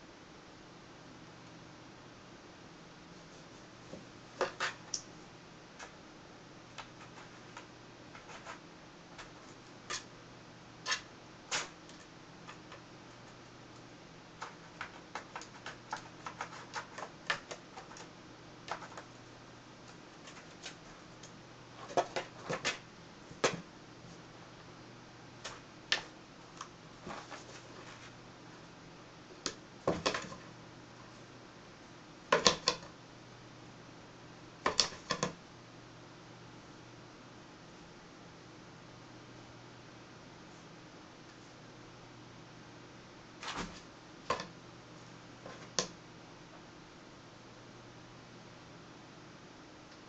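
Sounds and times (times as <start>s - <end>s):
cats scratching cardboard box: 6.8s - 8.6s, 9.2s - 10.1s, 14.3s - 19.2s, 19.8s - 22.8s.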